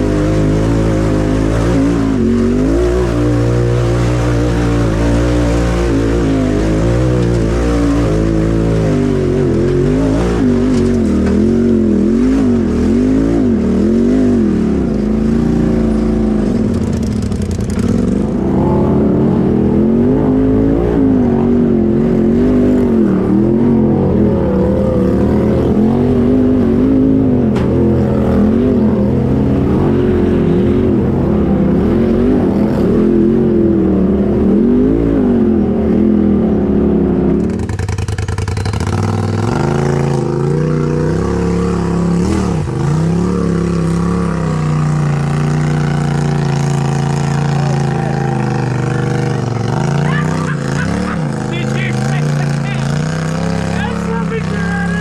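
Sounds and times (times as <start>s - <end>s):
off-road vehicle engine revving: 0.0s - 55.0s.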